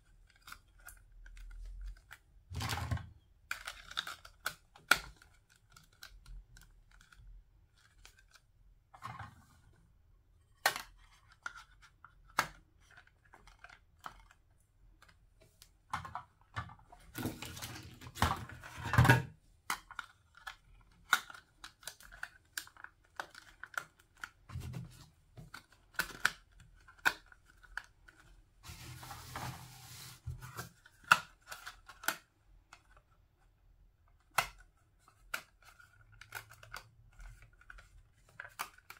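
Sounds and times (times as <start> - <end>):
plastic rubbing noise: 28.6 - 30.8.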